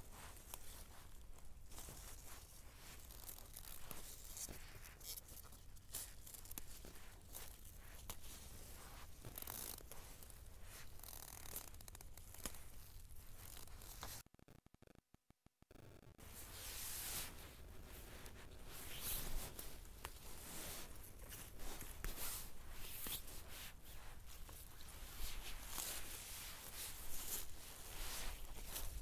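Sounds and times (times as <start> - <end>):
leaves rustling and crackling: 16.5 - 29.0.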